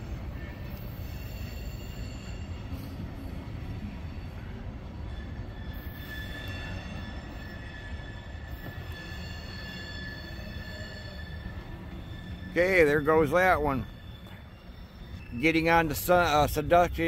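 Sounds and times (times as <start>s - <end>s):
freight train rumble: 0.0s - 17.0s
high wheel squeal: 0.0s - 17.0s.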